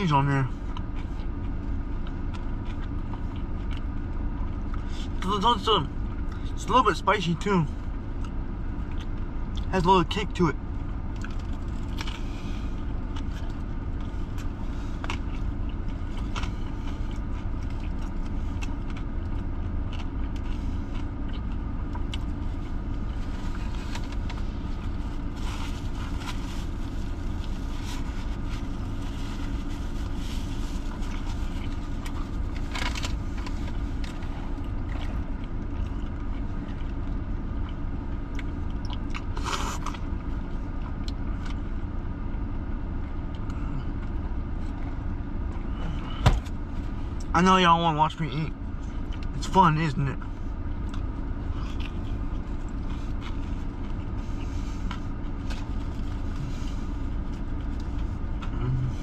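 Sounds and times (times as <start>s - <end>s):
car cabin hum: 0.0s - 59.0s
chewing: 0.7s - 5.1s, 8.1s - 9.7s, 10.9s - 24.8s, 25.5s - 41.7s, 48.9s - 49.3s, 50.8s - 59.0s.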